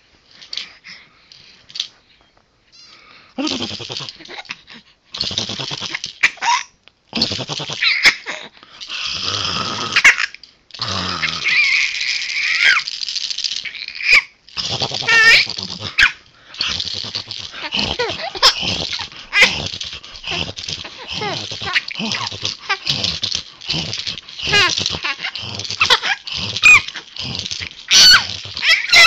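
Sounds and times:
animal raspy vocalizing: 0:14.6 - 0:29.0.

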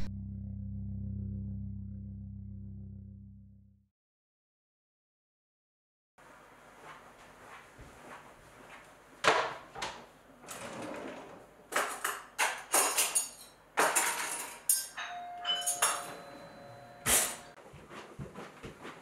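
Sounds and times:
crockery and cutlery clinking: 0:11.8 - 0:17.6.

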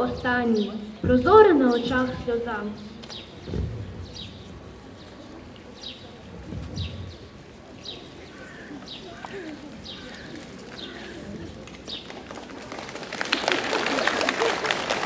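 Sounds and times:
applause: 0:11.9 - 0:15.0.

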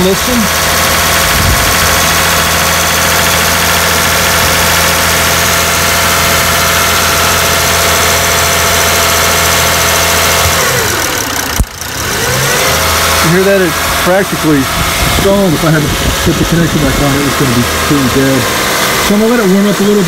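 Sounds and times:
engine idling roughly: 0:00.0 - 0:20.0.

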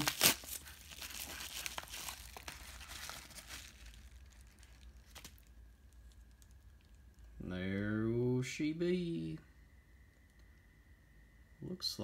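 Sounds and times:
paper mailer tearing: 0:00.0 - 0:03.6.

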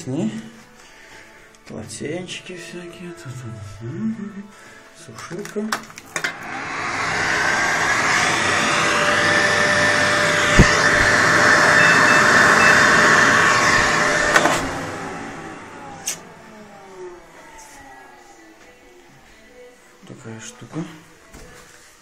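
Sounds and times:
hair dryer blowing with whine: 0:06.1 - 0:18.6.

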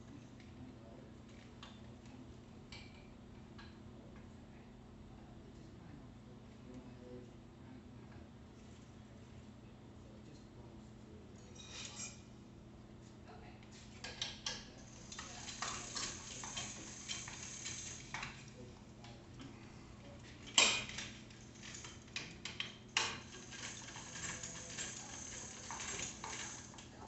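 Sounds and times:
metallic clicks and rattles: 0:14.0 - 0:19.2, 0:20.4 - 0:27.0.

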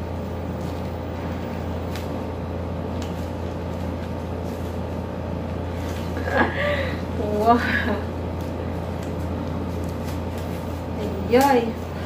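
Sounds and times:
steady low hum: 0:00.0 - 0:12.0
plastic gloves crinkling: 0:08.2 - 0:12.0.

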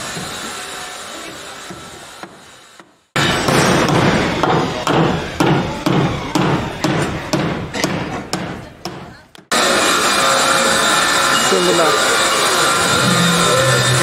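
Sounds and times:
hammering: 0:01.7 - 0:09.6.

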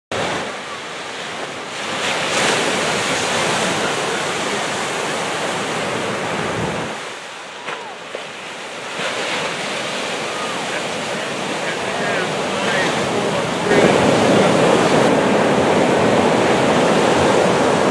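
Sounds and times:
surf breaking on sandy beach: 0:00.1 - 0:17.9.

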